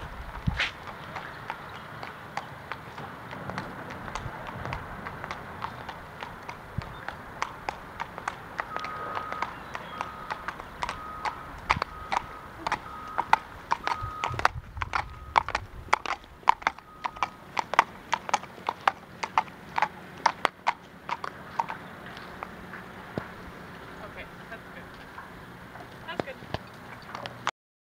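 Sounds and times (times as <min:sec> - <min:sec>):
hooves clip-clopping on asphalt: 0:00.0 - 0:27.5
short high beep: 0:08.7 - 0:14.4.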